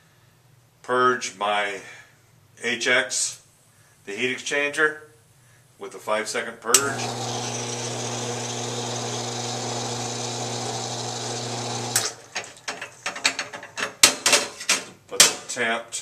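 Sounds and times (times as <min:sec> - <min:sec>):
espresso machine pump hum: 0:06.8 - 0:12.2
metal clicks and knocks: 0:12.4 - 0:15.4.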